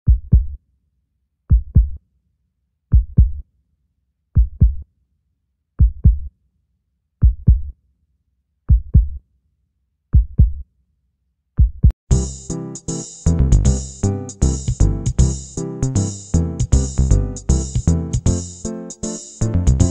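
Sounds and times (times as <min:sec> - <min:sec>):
heartbeat thumps: 0:00.0 - 0:00.6, 0:01.5 - 0:02.0, 0:03.0 - 0:03.4, 0:04.4 - 0:04.8, 0:05.8 - 0:06.3, 0:07.2 - 0:07.7, 0:08.7 - 0:09.2, 0:10.2 - 0:10.6, 0:11.6 - 0:12.0
music with drums: 0:07.2 - 0:07.7, 0:11.6 - 0:19.9.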